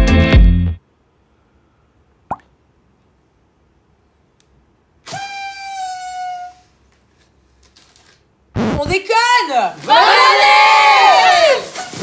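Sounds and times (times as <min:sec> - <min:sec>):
party horn toot: 0:05.0 - 0:06.7.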